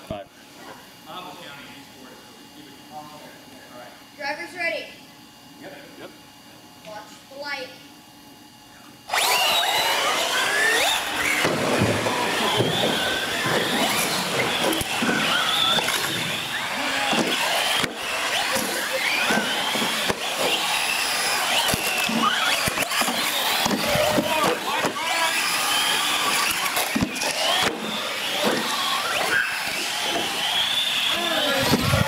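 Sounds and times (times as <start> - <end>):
electric motors whining: 0.4 - 32.0
tyres squealing: 9.2 - 32.0.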